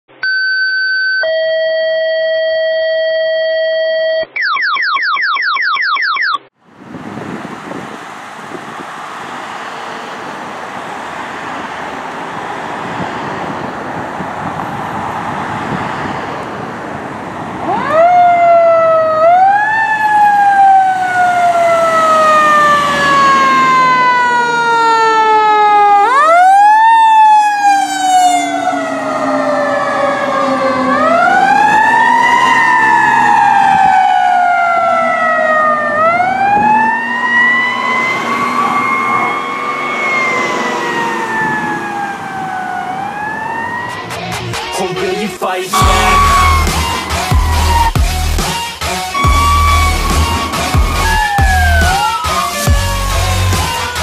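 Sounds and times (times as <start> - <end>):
fire engine approaching: 6.6 - 54.0
siren wailing: 7.7 - 44.9, 45.7 - 54.0
electronic alert tones: 45.8 - 48.4, 49.1 - 52.2.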